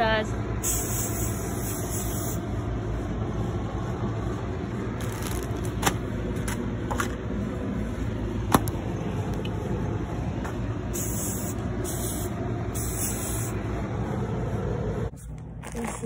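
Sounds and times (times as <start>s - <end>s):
steady low rumble: 0.0s - 16.0s
plastic mailer crinkling: 5.0s - 6.0s.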